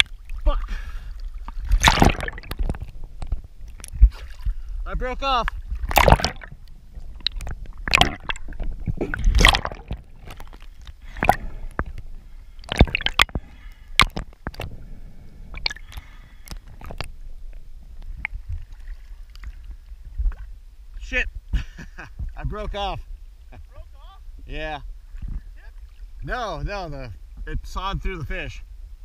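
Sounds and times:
seawater sloshing and gurgling: 0.0 - 21.1
water splashes and knocks: 1.4 - 4.6, 5.4 - 14.7.

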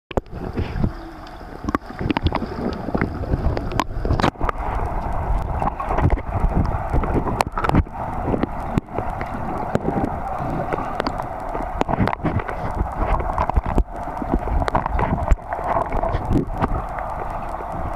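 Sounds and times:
underwater clicks and pops: 0.1 - 17.9
underwater water churning: 0.1 - 17.9.

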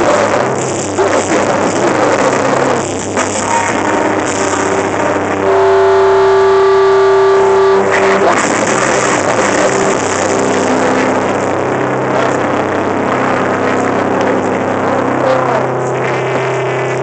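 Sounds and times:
amplifier hum: 0.0 - 17.0
stage and crowd noise: 0.0 - 17.0
ringing guitar chord: 1.9 - 15.2.

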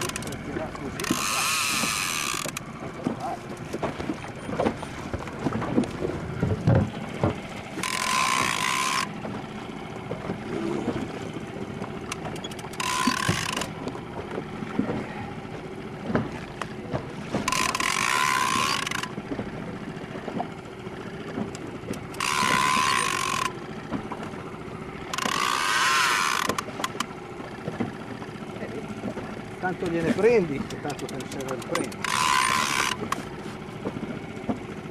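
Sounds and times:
light clicks and knocks: 0.0 - 9.4, 29.0 - 34.7
fishing reel buzzing: 1.0 - 2.6, 7.8 - 9.1, 12.4 - 13.7, 17.5 - 19.1, 22.1 - 23.6, 25.1 - 26.6, 31.7 - 33.0.

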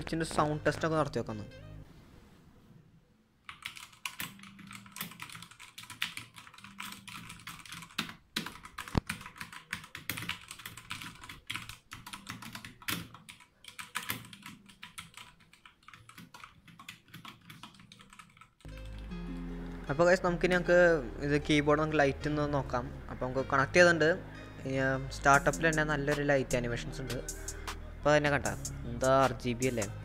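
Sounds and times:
mechanical keyboard typing: 3.5 - 19.0.

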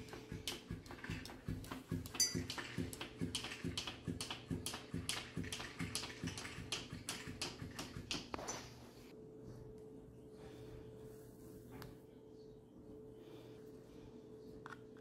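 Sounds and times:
toy fish slapping table: 0.0 - 8.4.

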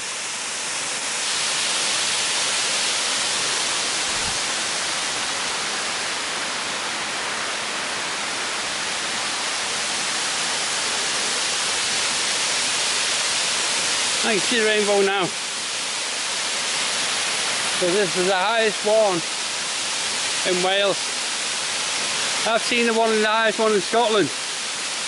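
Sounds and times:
waterfall pouring: 0.0 - 25.0.

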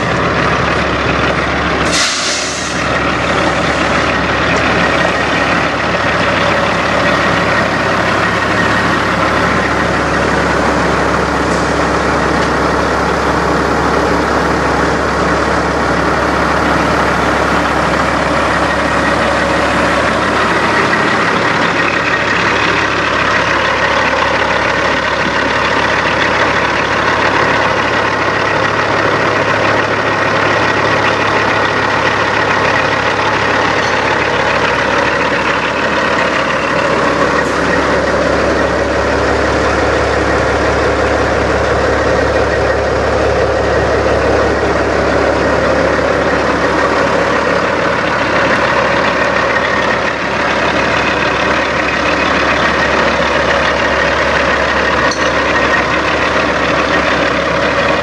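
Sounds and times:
diesel truck engine idling: 0.0 - 58.0
air hiss: 1.8 - 2.9.

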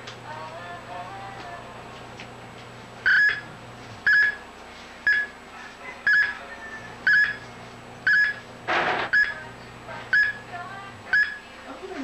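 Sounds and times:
tester beeping: 6.1 - 6.3, 7.0 - 7.4, 8.1 - 8.4, 9.1 - 9.4, 10.1 - 10.4, 11.1 - 11.4.

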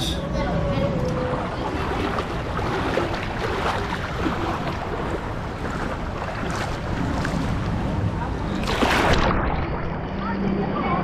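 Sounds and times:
water splashing around legs: 1.4 - 10.2.

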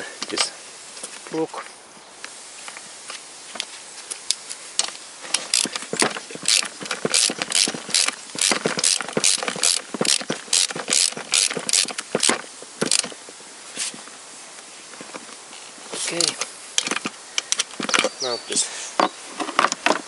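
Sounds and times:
ratchet wrench clicking: 5.4 - 13.1.

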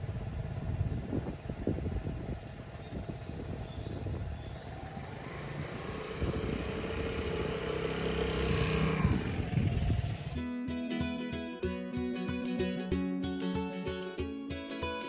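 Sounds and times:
scooter engine idling and revving: 0.0 - 11.5
guitar music: 9.9 - 15.0.

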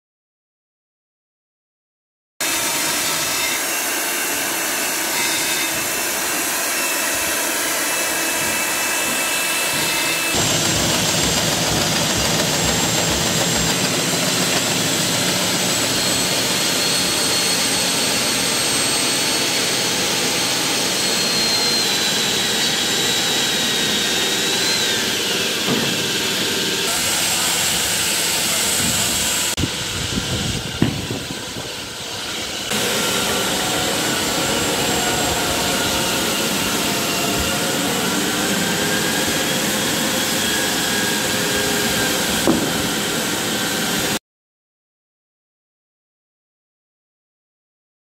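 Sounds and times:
core drill grinding into concrete: 2.4 - 44.2.

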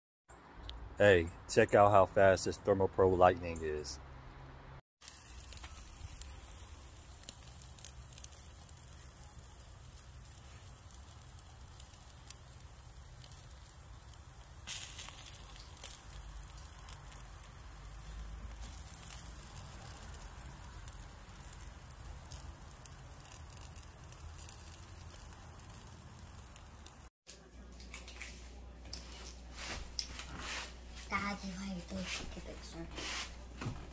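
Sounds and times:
crackles and pops: 5.0 - 27.1
meat sizzling over charcoal: 5.0 - 27.1
rustle: 5.0 - 27.1.

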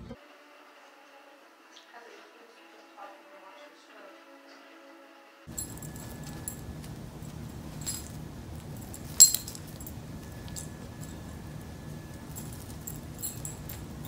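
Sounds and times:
metal tags clinking and jingling: 5.5 - 14.0.

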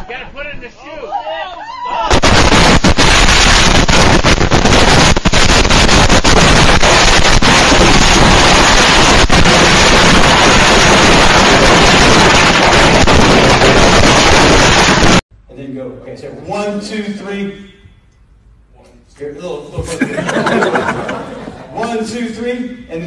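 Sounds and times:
sharp firework bangs: 2.1 - 15.2
fireworks bursting and crackling: 2.1 - 15.3.

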